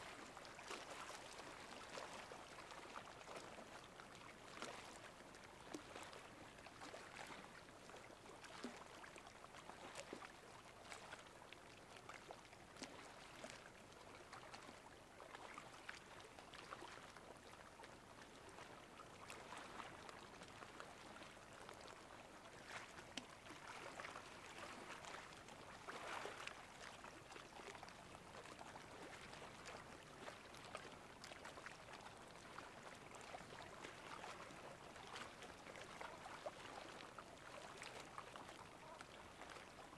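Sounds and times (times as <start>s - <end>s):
sea water lapping: 21.0s - 39.9s.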